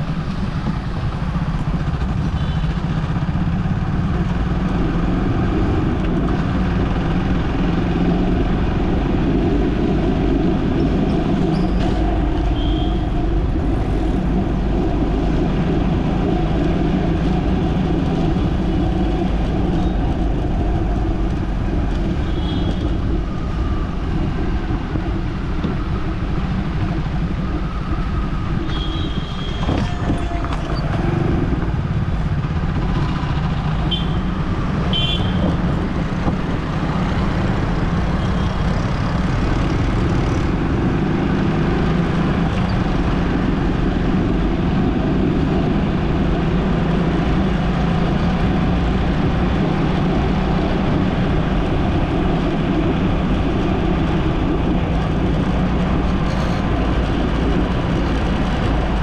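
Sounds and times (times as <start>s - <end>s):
car driving rumble: 0.0s - 59.0s.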